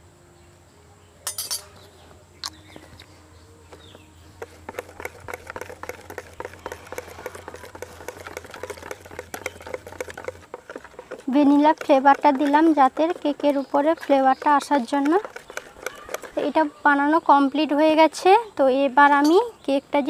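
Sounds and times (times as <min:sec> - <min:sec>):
sharp clinks: 0:01.3 - 0:01.7
whisk beating batter in plastic bowl: 0:03.7 - 0:17.6.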